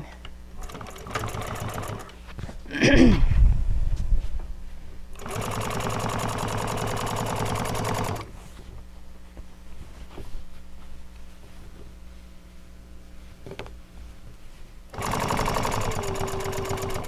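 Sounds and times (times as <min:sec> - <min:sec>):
sewing machine stitching: 0:00.6 - 0:02.2, 0:05.2 - 0:08.3, 0:14.9 - 0:17.0.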